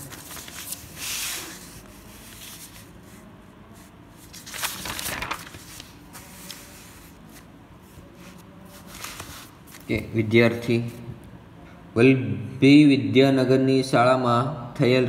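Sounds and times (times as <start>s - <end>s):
paper pages rustling: 0.0s - 3.2s, 3.8s - 10.0s.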